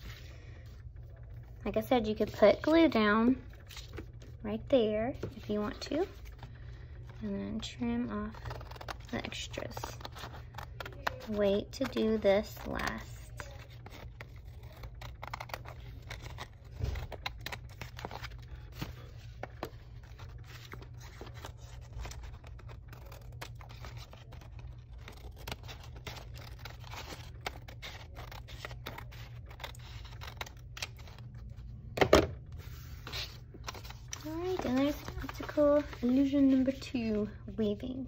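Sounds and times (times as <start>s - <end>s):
scissors snipping paper: 8.3s - 31.2s.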